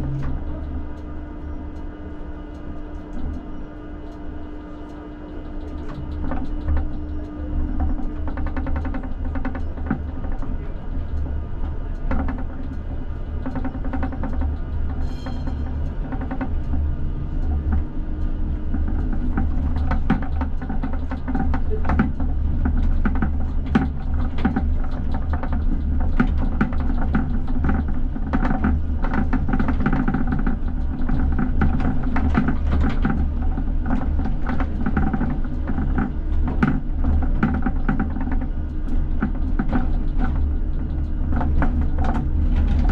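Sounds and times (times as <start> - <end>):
tram traction hum: 0.0 - 42.9
wheels knocking on rail joints: 18.6 - 42.9.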